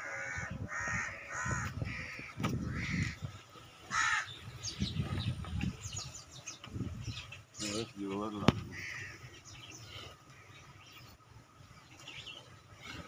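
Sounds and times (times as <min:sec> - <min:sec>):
crows cawing: 0:00.0 - 0:04.4, 0:08.6 - 0:09.5.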